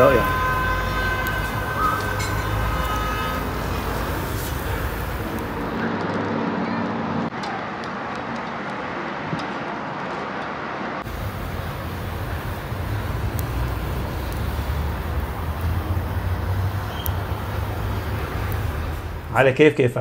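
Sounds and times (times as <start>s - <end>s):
meat sizzling on a grill: 0.0s - 5.8s, 11.0s - 19.2s
faint crackles: 0.0s - 5.9s, 11.0s - 19.3s
steady low rumble: 1.2s - 5.9s, 11.0s - 19.7s.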